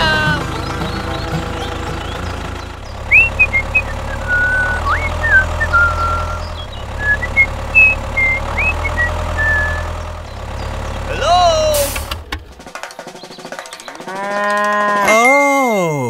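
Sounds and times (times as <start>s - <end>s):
engine-like drone: 0.0s - 14.8s
short high chirps and glides: 3.1s - 10.0s.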